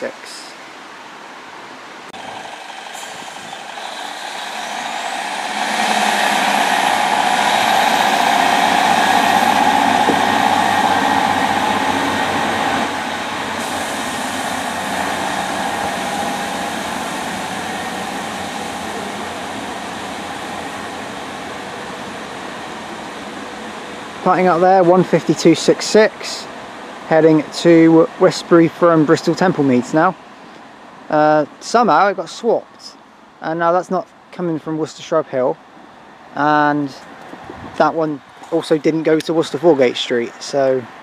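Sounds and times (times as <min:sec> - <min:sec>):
diesel train engines accelerating: 0:02.1 - 0:41.0
high whine: 0:02.2 - 0:22.3.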